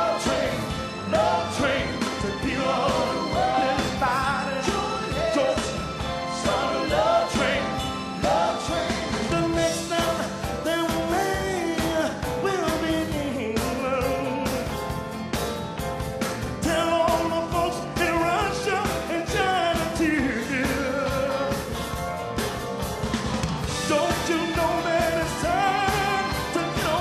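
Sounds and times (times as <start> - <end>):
drums and cymbals beat: 0.0 - 27.0
live soul band playing: 0.0 - 27.0
man singing into microphone: 16.6 - 21.6, 23.9 - 27.0.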